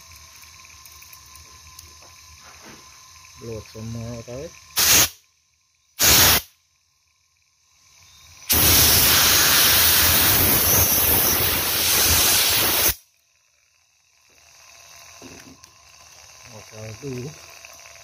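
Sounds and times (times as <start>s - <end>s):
loud steady air hiss: 0.0s - 18.0s
air blast: 4.8s - 5.2s, 6.0s - 6.5s, 8.5s - 13.0s.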